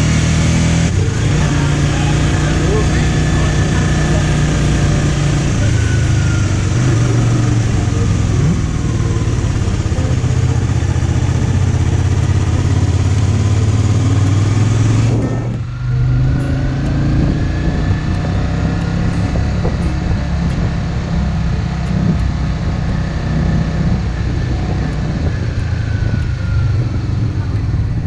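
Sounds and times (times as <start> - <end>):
motorcycle engine running: 0.0 - 28.0
road noise: 0.0 - 28.0
wind rushing: 10.6 - 27.3.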